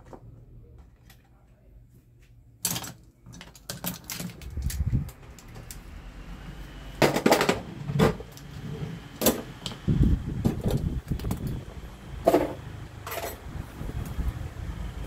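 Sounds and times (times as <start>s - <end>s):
fan motor airflow hiss: 4.3s - 15.0s.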